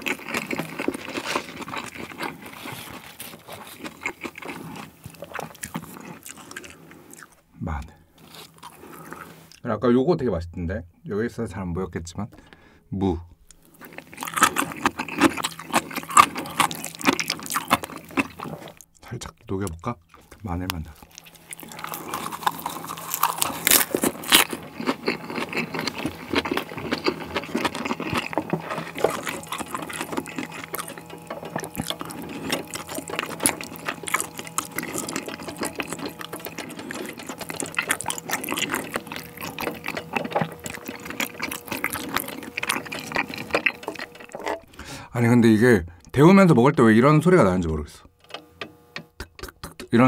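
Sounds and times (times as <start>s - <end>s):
sauce crackling and bubbling: 0.0s - 7.4s, 13.5s - 18.9s, 20.1s - 45.1s
wet chewing: 0.0s - 7.5s, 8.1s - 9.6s, 13.4s - 45.1s.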